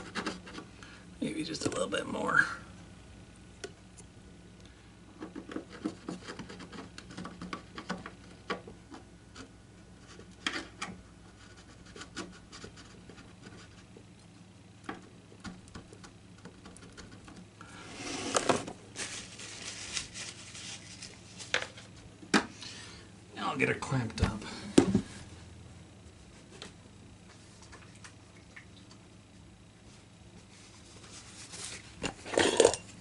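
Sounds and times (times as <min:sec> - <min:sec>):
steel feeler gauge scraping wood: 0:17.8 - 0:18.7.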